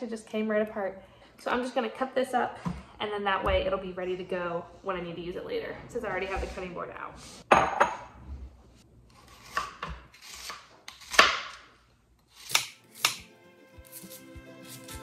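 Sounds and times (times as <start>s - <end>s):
knife slicing onion on board: 9.1s - 11.7s, 12.3s - 15.0s.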